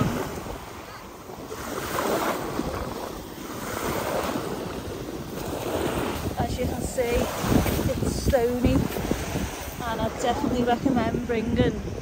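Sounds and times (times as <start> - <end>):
wind buffeting microphone: 0.0 - 12.0
waves breaking on shingle: 1.4 - 9.9.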